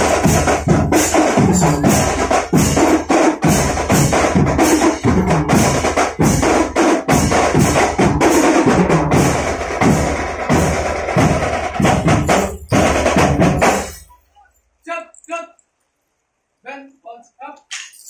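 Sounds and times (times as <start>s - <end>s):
snare drums: 0.0s - 14.1s
tenor drums: 0.0s - 14.5s.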